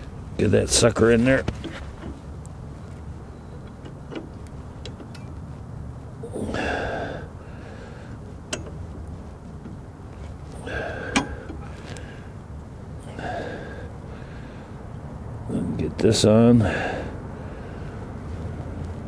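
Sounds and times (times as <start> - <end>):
man grunting with effort: 6.2 - 7.2
metal bolt clicks and taps: 8.5 - 8.8.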